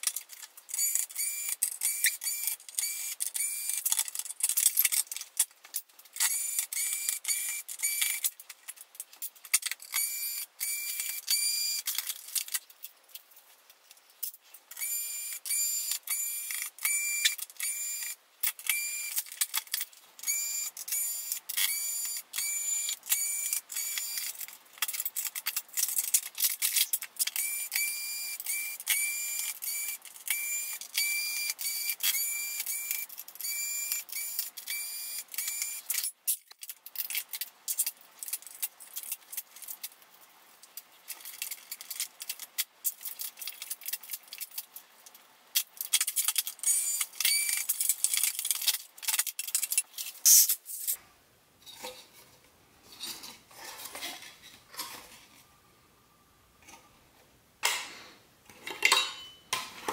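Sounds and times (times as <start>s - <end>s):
clicks and knocks of tools: 0.0s - 27.8s, 57.6s - 59.9s.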